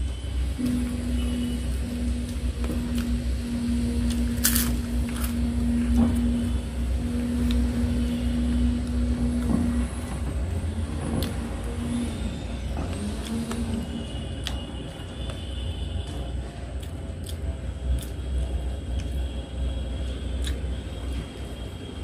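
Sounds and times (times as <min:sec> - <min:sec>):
low rumble with hum: 0:00.0 - 0:22.0.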